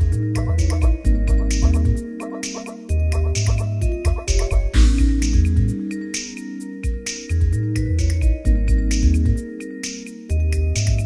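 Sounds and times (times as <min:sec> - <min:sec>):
deep bass: 0:00.0 - 0:02.0, 0:02.9 - 0:05.8, 0:07.4 - 0:09.4
background music with steady beat: 0:00.0 - 0:11.0
short repeated pitched notes: 0:00.4 - 0:05.3
drum hits: 0:03.2 - 0:05.4.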